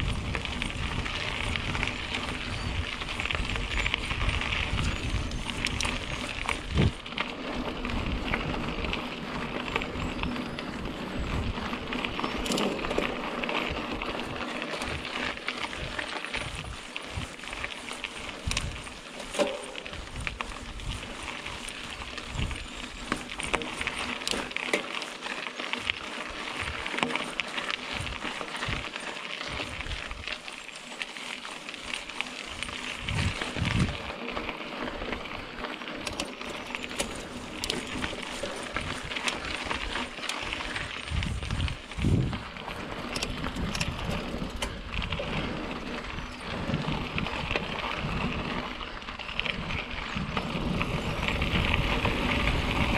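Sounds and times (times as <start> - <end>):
wind thumping on microphone: 0.0 - 2.0, 2.6 - 7.0, 33.0 - 34.1, 41.1 - 42.5
bike rattles and knocks: 0.0 - 52.9
bike tyres on dirt trail: 0.0 - 52.9.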